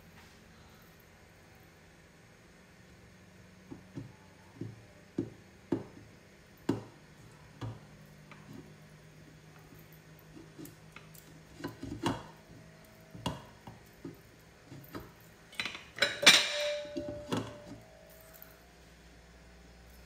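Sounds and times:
glass lid clinking on metal pot: 15.6s - 17.7s.

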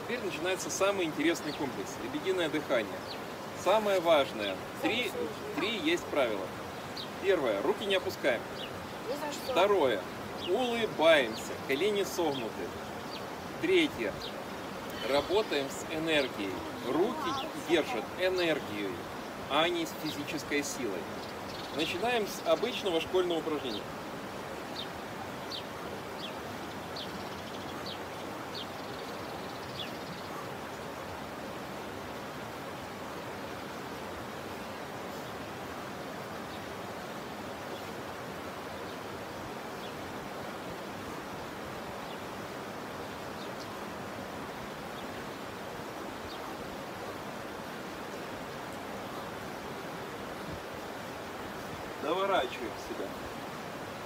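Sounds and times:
flowing water rushing: 0.0s - 54.0s
bird chirping: 0.3s - 23.9s, 24.6s - 30.6s.

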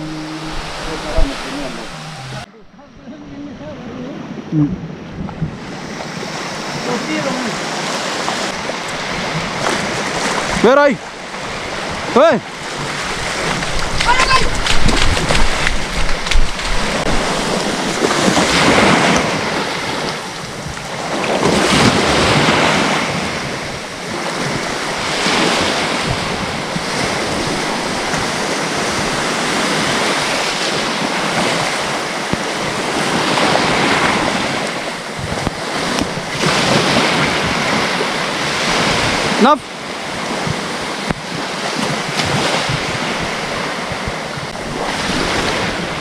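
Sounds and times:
sea waves surging: 0.0s - 46.0s
wind buffeting microphone: 0.0s - 46.0s.

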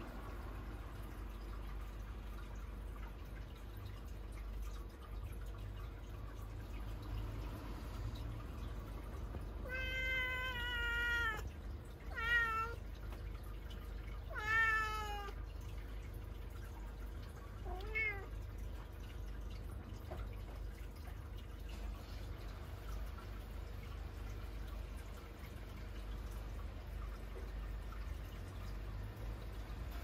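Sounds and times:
cat meowing: 9.6s - 12.8s, 14.2s - 15.4s, 17.6s - 18.3s.

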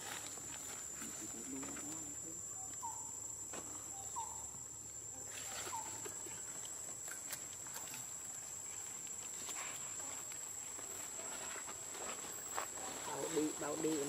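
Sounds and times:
dry leaves crackling and rustling: 0.0s - 1.9s, 5.3s - 14.0s.

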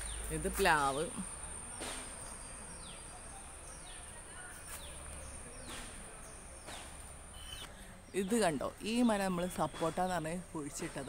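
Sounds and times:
bird chirps: 1.8s - 10.0s.

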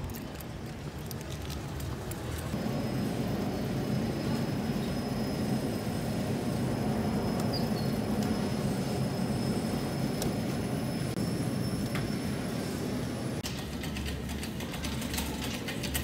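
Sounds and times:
refrigeration hum: 0.0s - 16.0s
faint high whine: 2.6s - 13.4s.

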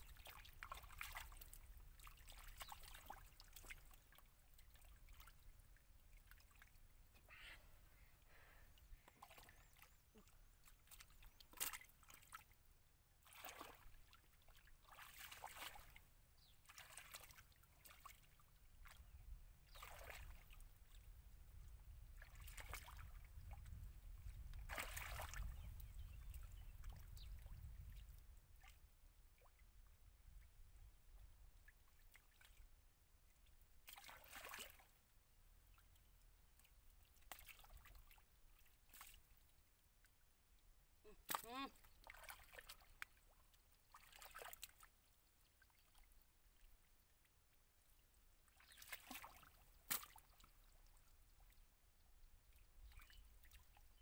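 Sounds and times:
hands splashing in mud and water: 10.8s - 12.5s, 13.2s - 14.0s, 14.8s - 16.0s, 16.6s - 18.2s, 24.6s - 25.5s, 33.9s - 34.9s, 41.2s - 43.2s, 43.9s - 44.9s, 48.5s - 50.6s.

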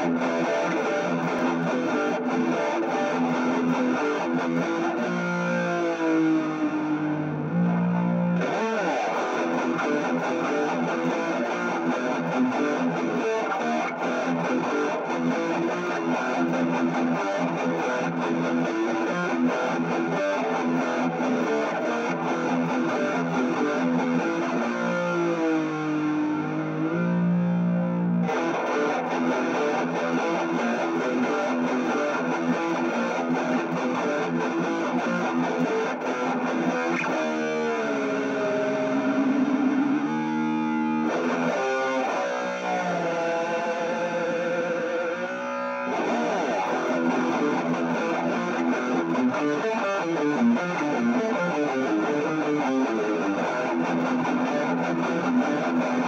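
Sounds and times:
overdriven electric guitar notes: 0.0s - 56.0s.

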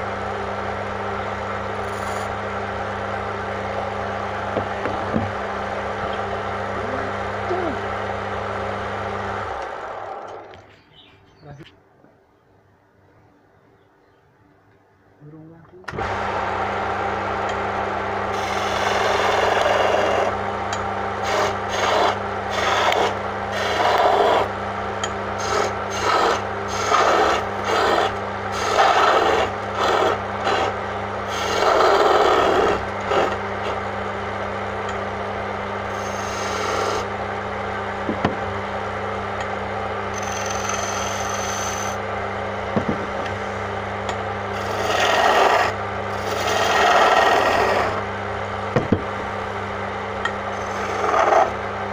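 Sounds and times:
wood lathe humming: 1.2s - 10.6s, 15.9s - 42.2s, 43.0s - 51.9s
chisel scraping spinning wood: 1.7s - 2.4s, 17.4s - 33.8s, 35.9s - 37.1s, 40.1s - 42.0s, 44.5s - 48.1s, 50.3s - 51.6s.

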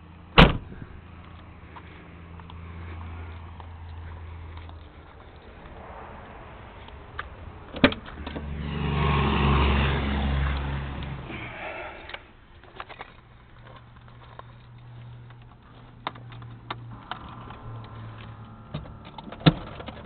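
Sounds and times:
car door opening: 0.4s - 0.9s, 16.9s - 20.0s
faint low hum: 12.0s - 20.0s.

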